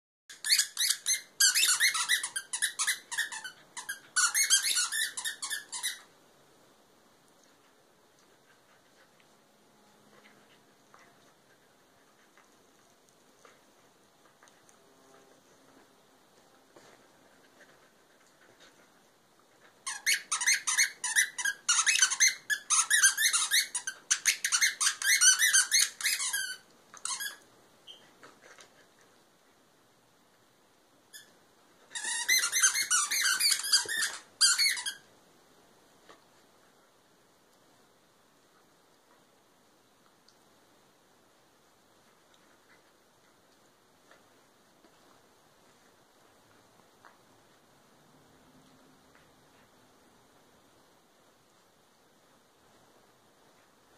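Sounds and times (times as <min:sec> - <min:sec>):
squeaky toy squeaking: 0:00.3 - 0:06.1, 0:19.8 - 0:28.0, 0:31.1 - 0:35.0.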